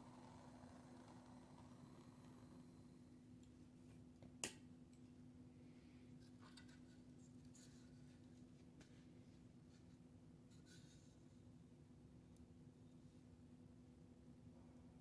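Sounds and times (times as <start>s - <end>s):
steady low hum: 0.0s - 3.5s.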